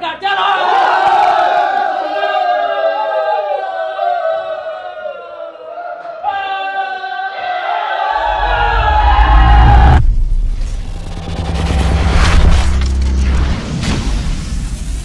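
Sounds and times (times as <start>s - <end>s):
choir-like voices holding notes: 1.8s - 10.0s
deep bass swell: 8.2s - 14.7s.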